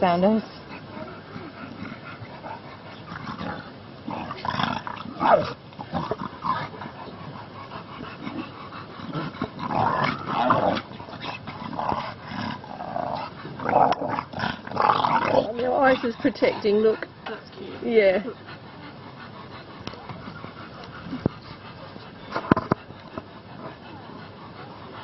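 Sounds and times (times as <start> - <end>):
dog growling and grunting: 0.7 - 17.0.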